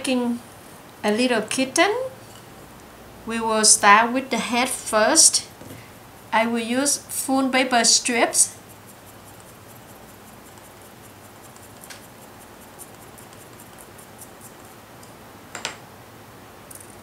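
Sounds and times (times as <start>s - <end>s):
steady hiss: 0.0s - 17.0s
paper strip ticking and rustling: 8.6s - 14.8s.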